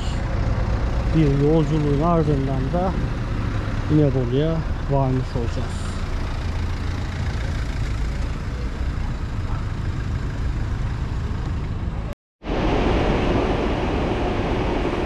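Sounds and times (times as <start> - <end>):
vehicle engines idling: 0.0 - 12.2.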